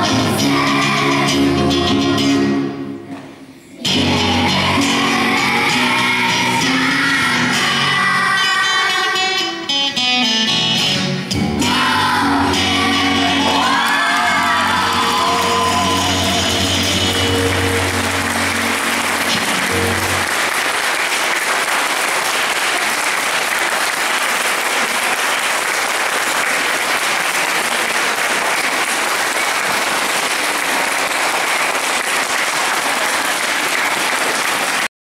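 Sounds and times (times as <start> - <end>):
music closing chord: 11.6 - 20.6
audience applauding: 12.1 - 34.9.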